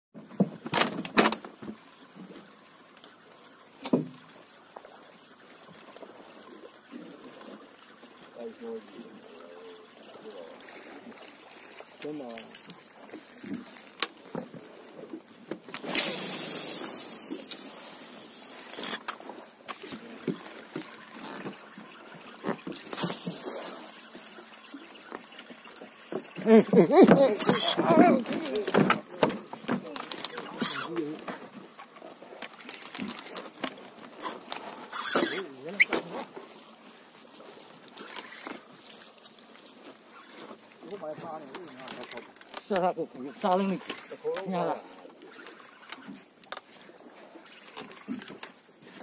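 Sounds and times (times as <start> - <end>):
water lapping against boat hull: 0.2 - 49.0
steady hiss: 15.8 - 19.0.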